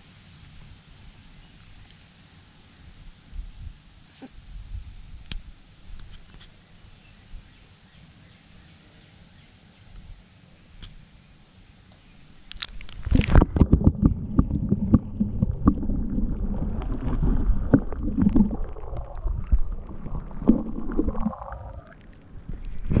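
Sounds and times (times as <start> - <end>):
water sloshing and gurgling underwater: 12.4 - 23.0.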